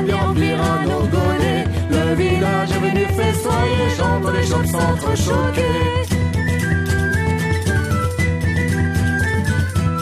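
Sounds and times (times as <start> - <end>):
woman singing: 0.0 - 6.2
folk music with fiddle and beat: 0.0 - 10.0.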